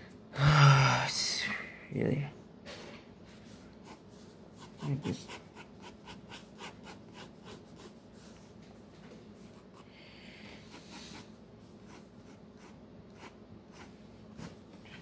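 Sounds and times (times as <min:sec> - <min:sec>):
pencil scratching on paper: 0:03.8 - 0:08.5, 0:10.6 - 0:15.0.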